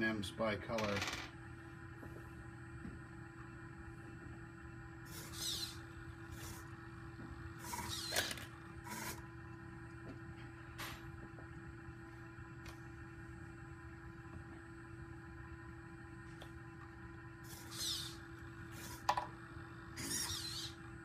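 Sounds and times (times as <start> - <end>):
steady electrical hum: 0.0 - 21.0
robot arm servo motors whining: 5.1 - 6.6, 7.6 - 9.2, 17.5 - 19.1, 20.0 - 20.8.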